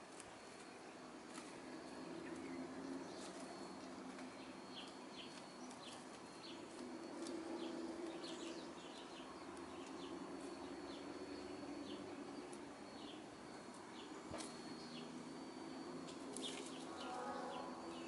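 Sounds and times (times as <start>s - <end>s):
small birds chirping: 0.2s - 18.0s
hens crooning: 13.1s - 18.0s.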